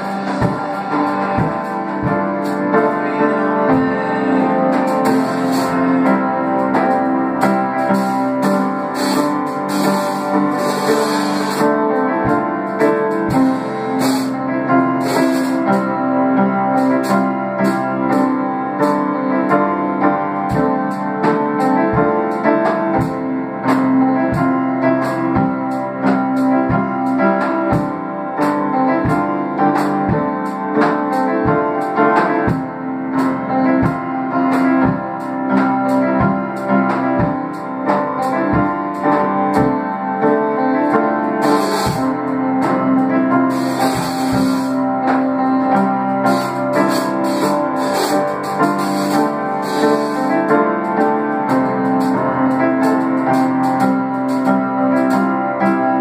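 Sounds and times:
low thumping beat: 0.0 - 7.2
piano-like chords: 0.0 - 56.0.

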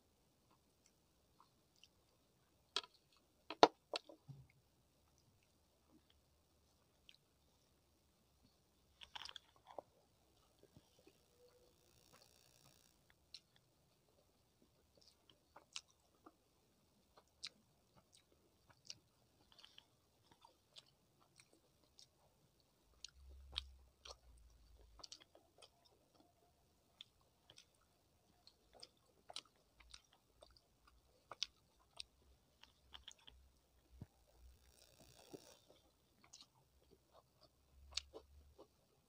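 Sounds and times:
wet chewing mouth clicks: 34.7 - 38.8.

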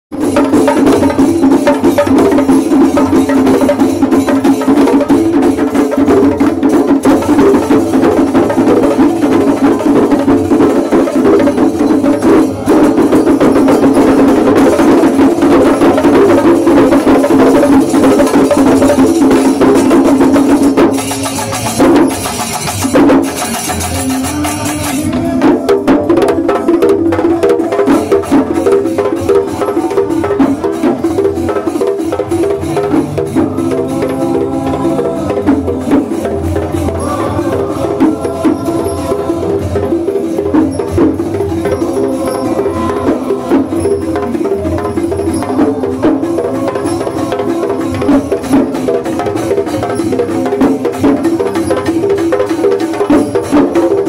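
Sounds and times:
fast dense drumming: 0.1 - 54.0
held wind instrument tone: 32.8 - 49.6.

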